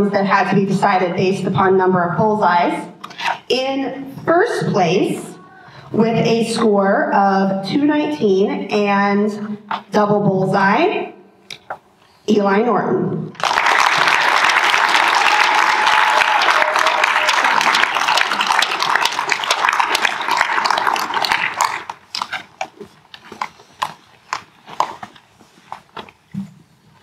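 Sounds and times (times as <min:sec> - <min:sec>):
audience applauding: 0:13.4 - 0:22.2.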